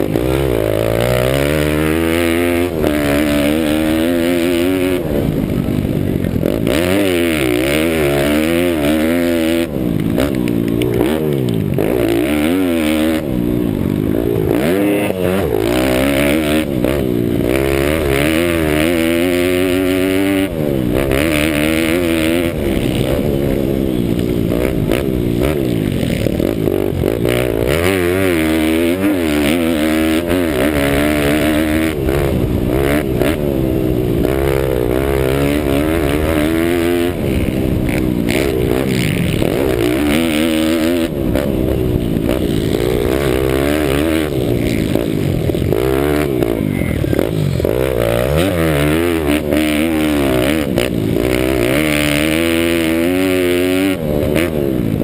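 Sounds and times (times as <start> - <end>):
clatter: 0.0 - 13.6
pit bike engine revving: 0.0 - 55.0.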